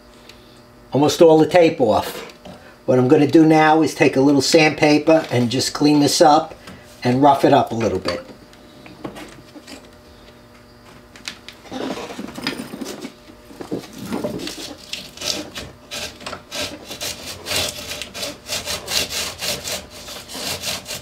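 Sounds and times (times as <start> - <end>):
sandpaper rubbing: 14.3 - 21.0.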